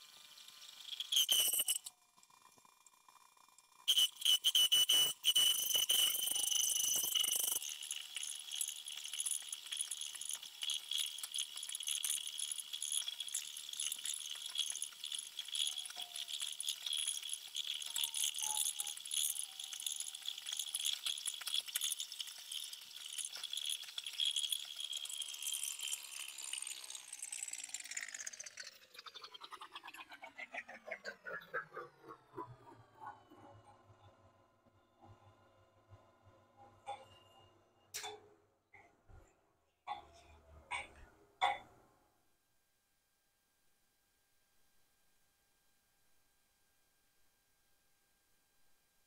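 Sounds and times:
metal chips ticking and clinking: 0:00.6 - 0:01.9, 0:03.9 - 0:28.8.

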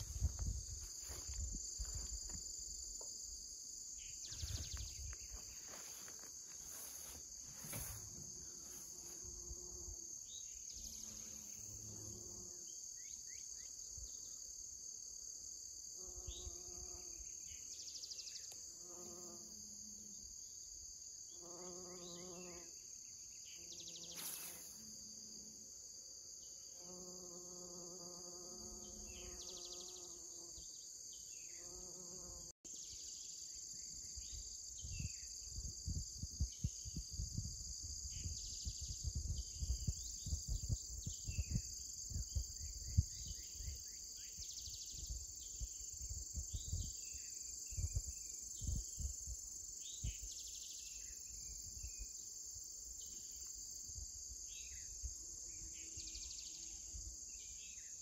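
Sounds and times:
wind buffeting microphone: 0:00.0 - 0:01.8, 0:34.8 - 0:43.8
insects chorus: 0:00.0 - 0:58.0
bee buzzing: 0:26.8 - 0:30.6.

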